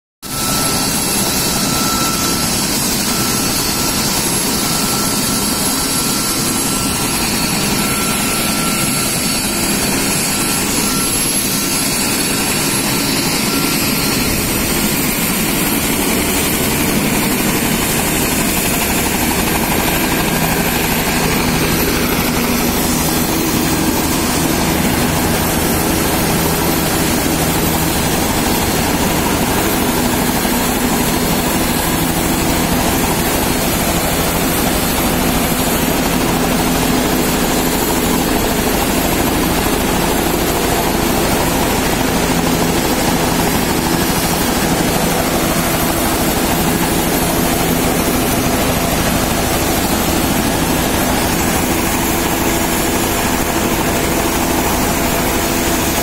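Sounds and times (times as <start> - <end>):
helicopter engine and rotor: 0.2 - 56.0
high turbine whine: 0.2 - 56.0.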